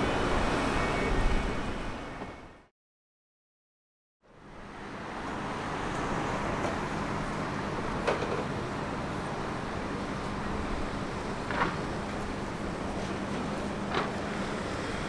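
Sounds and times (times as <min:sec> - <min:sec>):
rumbling background noise: 0:04.4 - 0:15.0.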